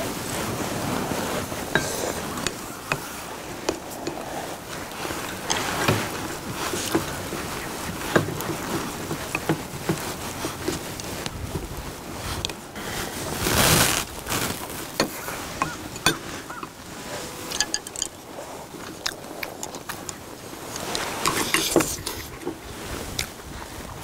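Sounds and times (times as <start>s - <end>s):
chewing: 1.2s - 11.4s, 17.4s - 23.4s
spoons clicking against bowls: 15.0s - 16.8s, 17.5s - 18.2s.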